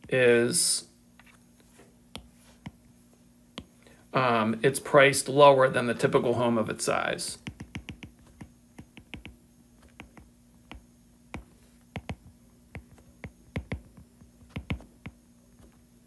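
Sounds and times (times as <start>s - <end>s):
stylus tapping on tablet screen: 7.4s - 15.2s.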